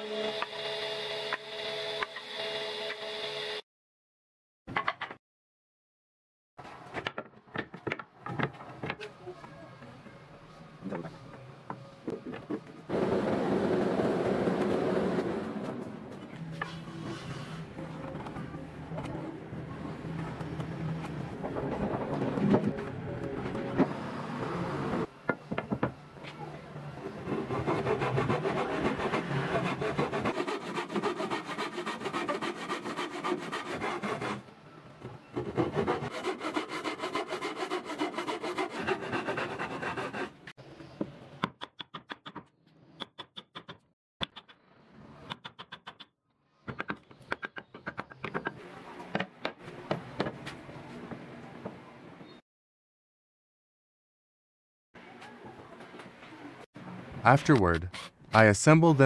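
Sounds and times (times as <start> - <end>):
hand saw cutting wood: 27.3 - 34.4, 35.4 - 40.5.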